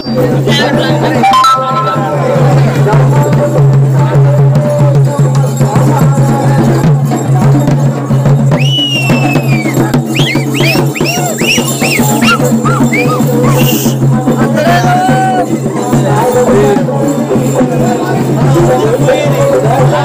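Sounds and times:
barrel drums beating fast: 0:00.2 - 0:20.0
shrill whistling: 0:08.6 - 0:14.0.

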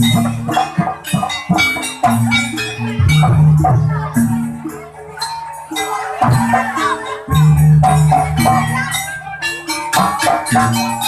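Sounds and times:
gamelan music: 0:00.0 - 0:11.0.

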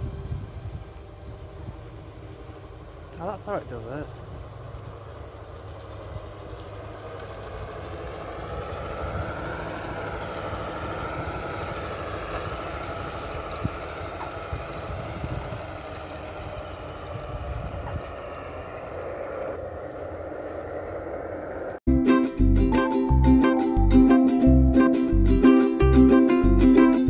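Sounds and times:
model train motor whine: 0:00.0 - 0:20.6.

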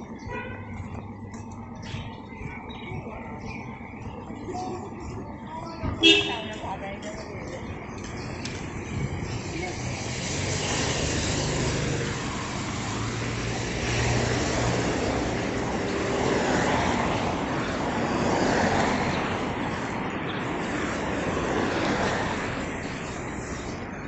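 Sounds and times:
road and wind noise: 0:00.0 - 0:24.0.

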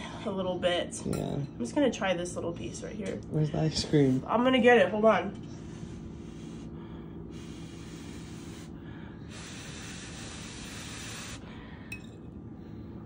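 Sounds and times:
person blowing on food: 0:07.3 - 0:11.5.

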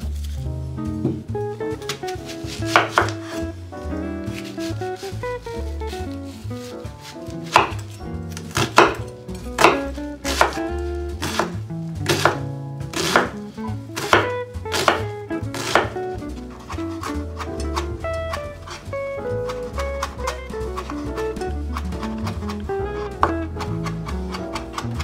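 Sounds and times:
soft background music: 0:00.0 - 0:25.0
knife chopping on wooden board: 0:01.0 - 0:03.4, 0:07.0 - 0:13.4, 0:14.0 - 0:25.0.

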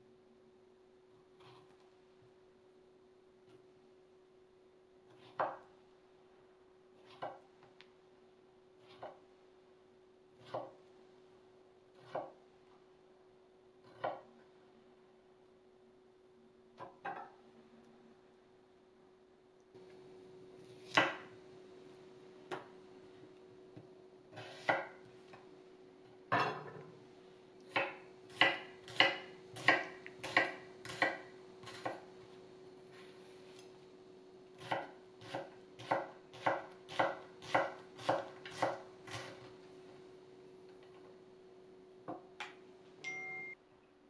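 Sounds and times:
knife chopping onion on wooden board: 0:05.1 - 0:05.7, 0:07.0 - 0:07.5, 0:08.8 - 0:09.3, 0:10.4 - 0:10.8, 0:11.9 - 0:12.4, 0:13.8 - 0:14.3, 0:20.8 - 0:21.3, 0:23.8 - 0:25.0, 0:27.7 - 0:32.1, 0:34.6 - 0:39.5.

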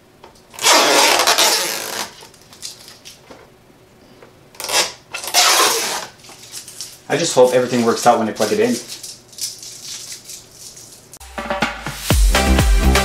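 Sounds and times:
plastic scraping and rubbing: 0:00.5 - 0:03.5, 0:04.6 - 0:11.0.

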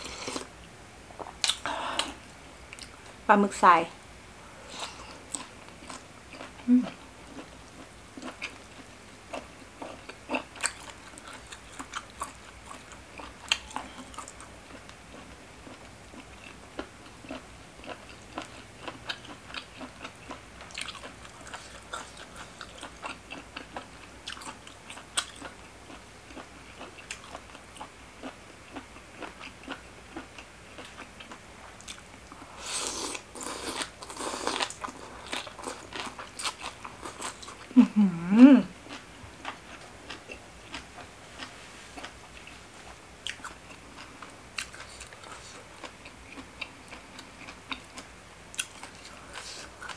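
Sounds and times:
chewing and crunching salad: 0:01.2 - 0:03.2, 0:04.7 - 0:49.9.

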